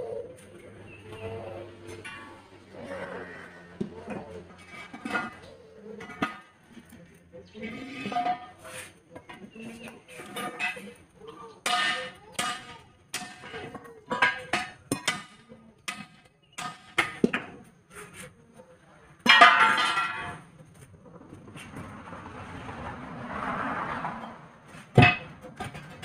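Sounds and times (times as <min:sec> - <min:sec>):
tyre iron clanking on wheel rims: 0:00.0 - 0:18.3, 0:19.1 - 0:26.0.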